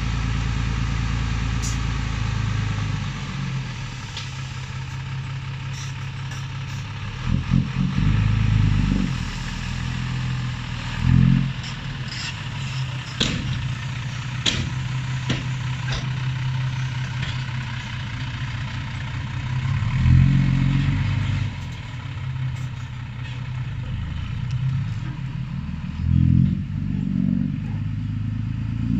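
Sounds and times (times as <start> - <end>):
diesel truck engine idling and revving: 0.0 - 28.9
sharp metallic clanks: 11.6 - 17.5.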